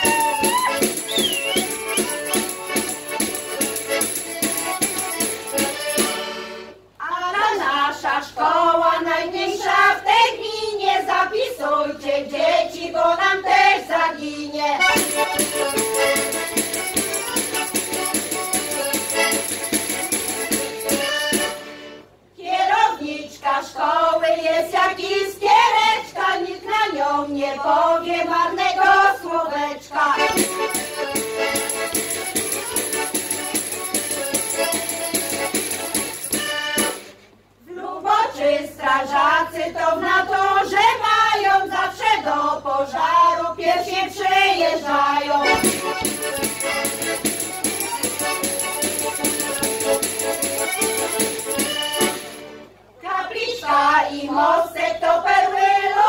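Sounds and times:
instrumental accompaniment: 0.0s - 7.0s, 14.8s - 22.3s, 30.2s - 37.5s, 45.4s - 52.9s
women's choir singing: 7.0s - 15.5s, 22.4s - 31.0s, 37.6s - 47.2s, 53.0s - 56.0s.

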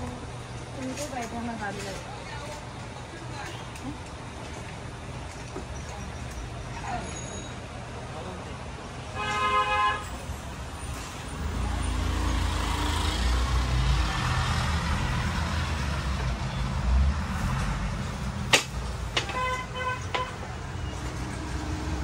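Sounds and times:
road traffic rumble: 0.0s - 22.0s
vehicle horn honking: 9.2s - 10.2s, 19.3s - 20.4s.

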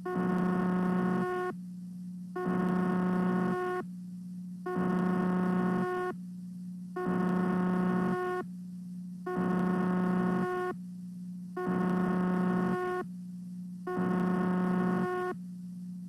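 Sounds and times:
harsh buzz: 0.0s - 1.6s, 2.3s - 3.9s, 4.6s - 6.2s, 6.9s - 8.5s, 9.2s - 10.8s, 11.5s - 13.1s, 13.8s - 15.5s
low electrical hum: 0.0s - 16.0s.

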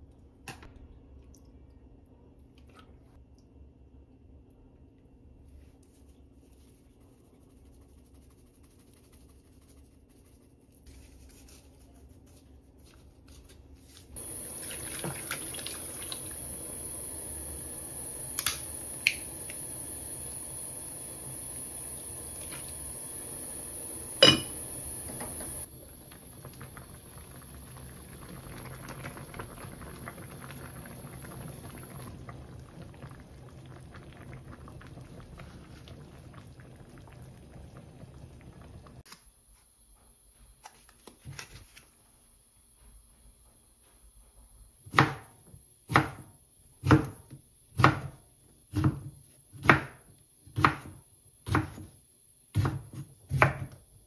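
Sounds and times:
liquid pouring into saucepan: 14.2s - 17.8s.

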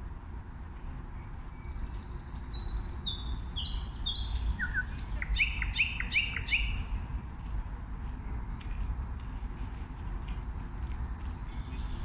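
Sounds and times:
nightingale singing: 1.2s - 6.9s.

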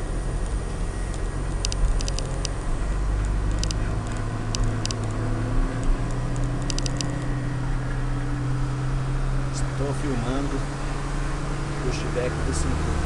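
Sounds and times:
tractor diesel engine running: 0.0s - 13.0s
short sharp clicks: 6.1s - 7.3s.

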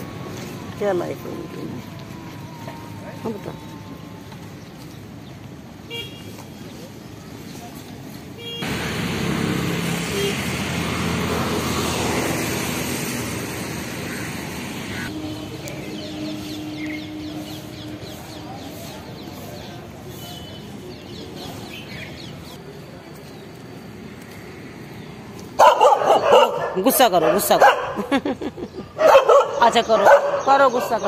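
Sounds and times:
outdoor background noise: 0.0s - 31.0s
birds chirping: 13.9s - 31.0s.

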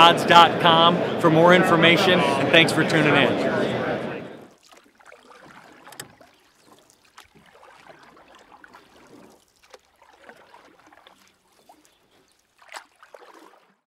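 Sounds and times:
murmur of many voices: 0.0s - 4.5s.

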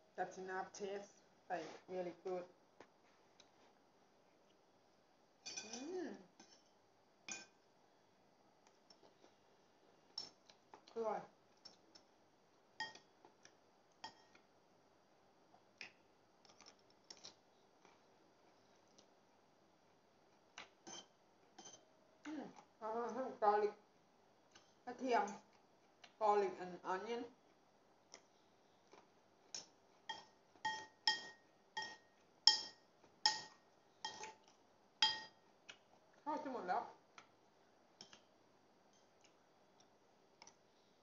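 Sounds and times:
cutlery clinking on a plate: 5.5s - 5.8s, 29.6s - 34.4s, 35.0s - 35.4s.

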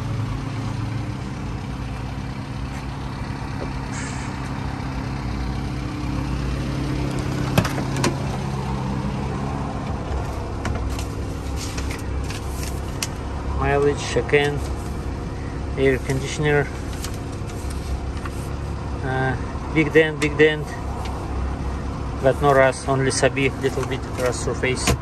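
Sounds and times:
truck engine idling: 0.0s - 25.0s
paper rustling: 10.2s - 13.2s, 14.5s - 15.1s, 16.0s - 18.6s.

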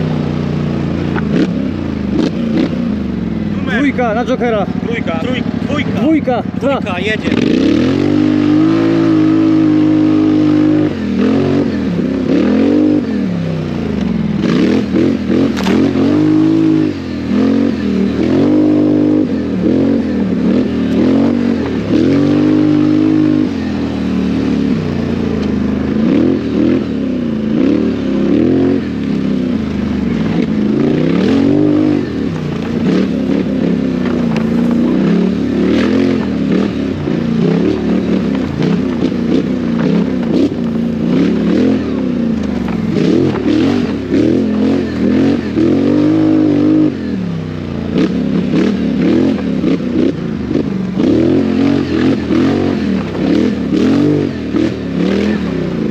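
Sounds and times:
quad engine revving: 0.0s - 55.9s
knocks and clatters: 42.4s - 44.0s.

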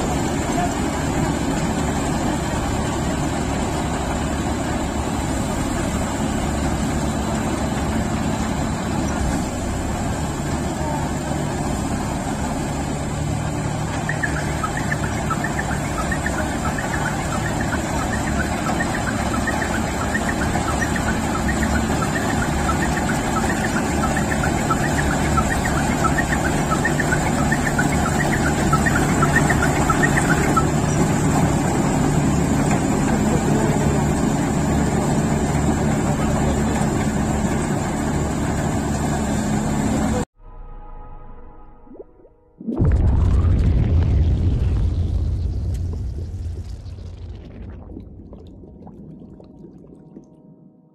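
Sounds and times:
diesel engine running: 0.0s - 40.3s.

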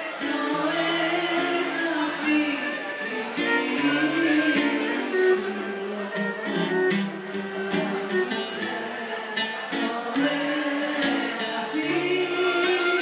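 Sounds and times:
live instrumental accompaniment: 0.0s - 13.0s
woman singing into a microphone: 0.0s - 13.0s.

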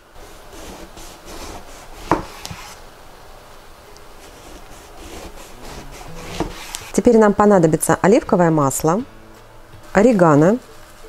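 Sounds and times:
knife rasping through eggplant: 4.2s - 7.0s.

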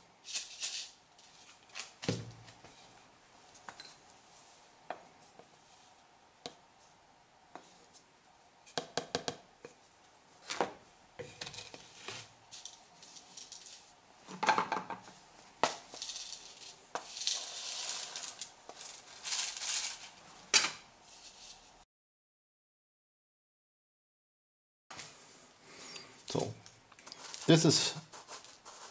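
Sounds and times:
charcoal rattling in wire sieve: 0.2s - 1.8s, 11.6s - 13.9s, 15.7s - 20.2s, 27.1s - 28.9s.

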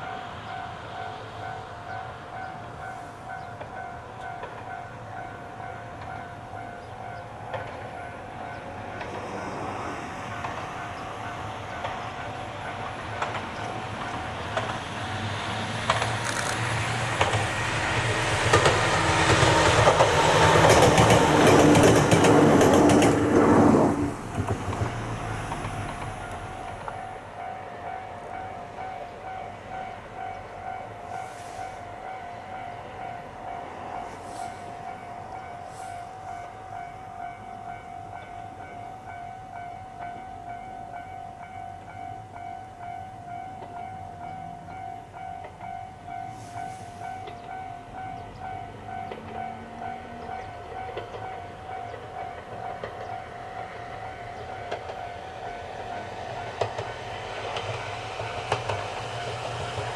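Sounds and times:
train wheels clicking over rail joints: 5.9s - 9.4s, 10.3s - 27.2s, 43.5s - 59.9s.

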